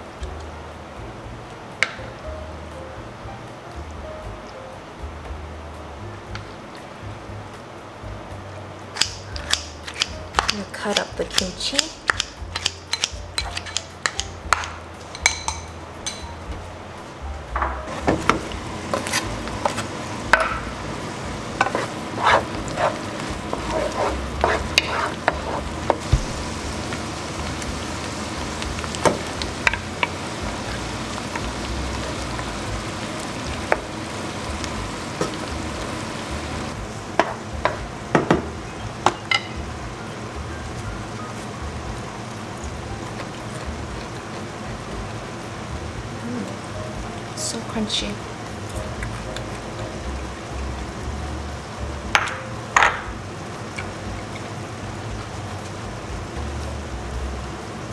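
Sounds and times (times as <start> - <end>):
food sizzling in a pan: 8.9 - 17.2, 17.8 - 57.9
wooden spoon scraping a pan: 17.9 - 19.9, 21.6 - 26.4.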